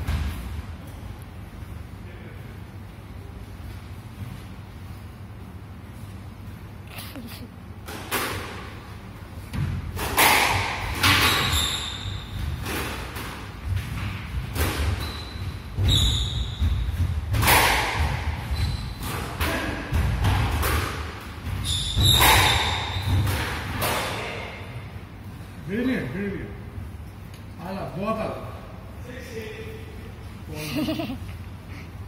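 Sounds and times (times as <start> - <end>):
squash racket and ball thwacks: 9.5 - 11.4, 16.6 - 18.4, 19.0 - 24.2
shoes squeaking on wooden floor: 15.0 - 17.0, 21.6 - 23.2.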